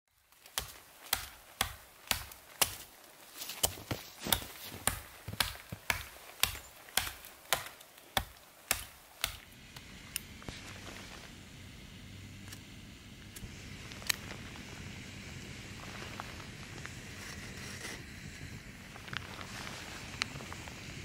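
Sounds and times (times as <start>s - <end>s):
hatchet chopping tree trunk: 0.4s - 2.9s, 3.5s - 9.5s.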